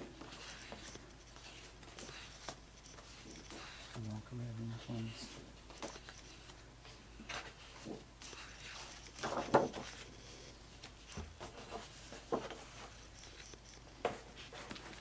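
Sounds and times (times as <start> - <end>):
photo paper sliding and rustling: 7.2 - 10.1.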